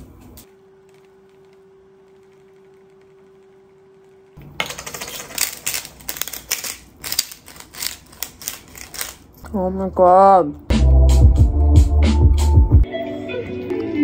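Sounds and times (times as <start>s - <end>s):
pepper grinder crunching: 4.4s - 9.4s.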